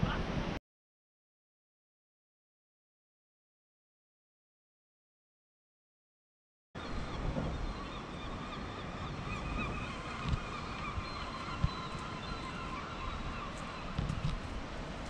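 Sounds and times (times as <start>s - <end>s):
gulls calling: 6.8s - 15.0s
wind rumble on microphone: 6.8s - 15.0s.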